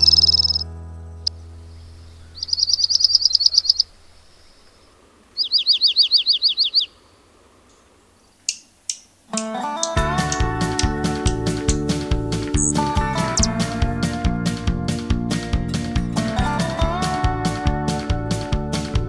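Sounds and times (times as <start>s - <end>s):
plucked-string music with bass: 0.0s - 2.4s, 9.3s - 19.0s
bird singing high trills: 0.0s - 7.0s, 12.6s - 13.5s.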